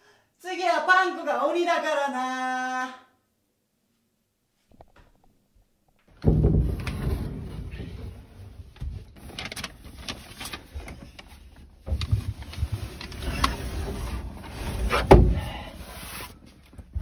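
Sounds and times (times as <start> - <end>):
sliding closet door shutting: 6.1 - 10.0, 11.8 - 16.4.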